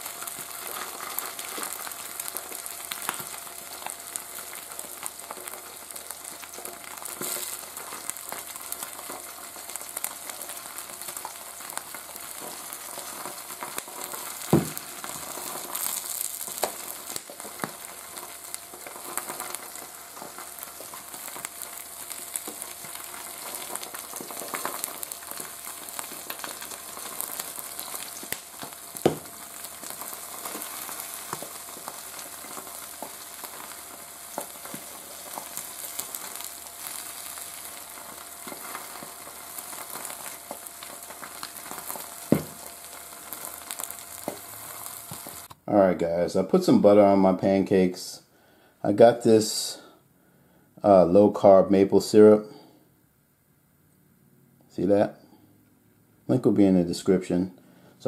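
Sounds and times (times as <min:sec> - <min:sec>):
eggs sizzling on a griddle: 0:00.0 - 0:45.8.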